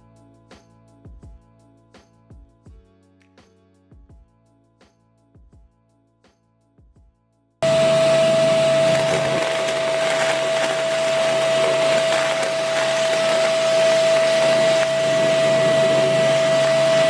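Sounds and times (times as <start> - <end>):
vacuum cleaner running: 7.6 - 17.0.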